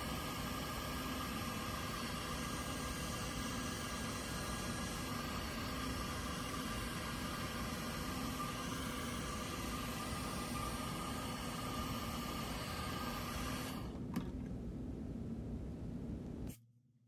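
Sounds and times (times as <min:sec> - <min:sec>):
hair dryer running: 0:00.0 - 0:13.9.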